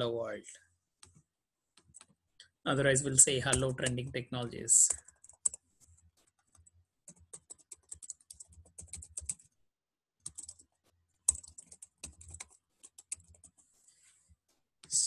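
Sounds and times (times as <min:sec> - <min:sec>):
typing on keyboard: 0:03.4 - 0:04.1, 0:04.8 - 0:09.5, 0:10.2 - 0:13.6.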